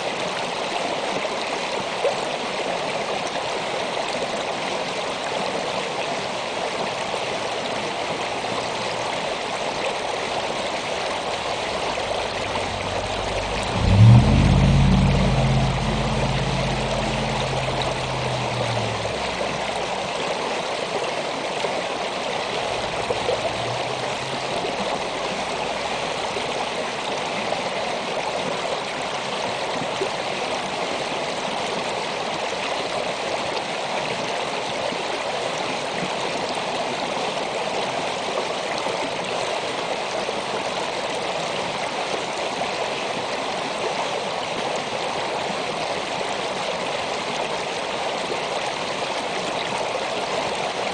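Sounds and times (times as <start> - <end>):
stream flowing over rocks: 0.0 - 50.9
low rumble: 11.1 - 20.2, 22.4 - 26.3.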